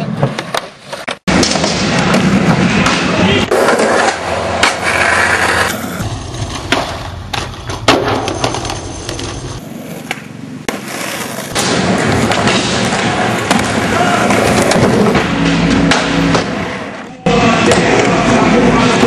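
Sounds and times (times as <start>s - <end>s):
skateboard clacking on ground: 0.0s - 15.1s
skateboard wheels rolling on concrete: 0.0s - 19.0s.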